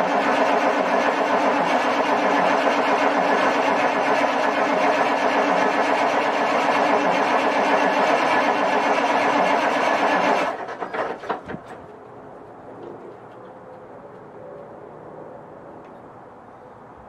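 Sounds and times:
engine knocking as it stops: 0:00.0 - 0:11.5
diesel engine running: 0:00.0 - 0:16.3.

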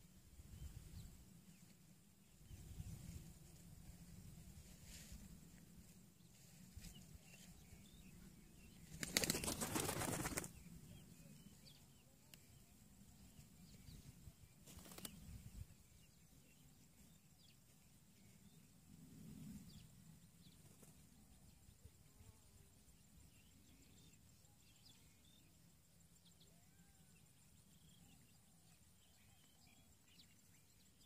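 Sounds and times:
pigeon wings flapping: 0:08.9 - 0:10.5, 0:14.6 - 0:15.2.

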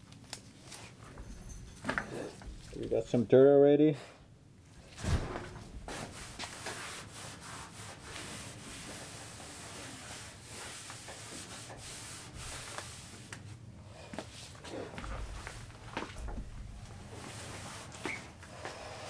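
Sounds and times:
cloth rag rubbing sheet metal: 0:04.9 - 0:13.4, 0:14.1 - 0:18.4.

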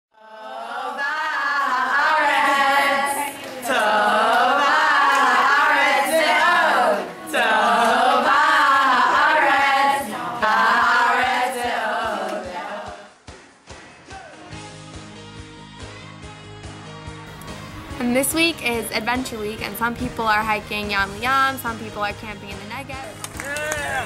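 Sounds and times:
girls singing unaccompanied: 0:00.2 - 0:13.1.

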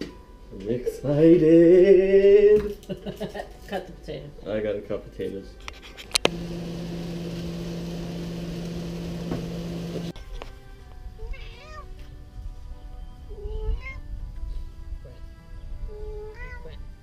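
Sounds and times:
soft background music: 0:00.0 - 0:06.3, 0:10.1 - 0:17.0
steady hum: 0:06.3 - 0:10.1
cat meowing: 0:11.3 - 0:11.9, 0:16.0 - 0:16.8.

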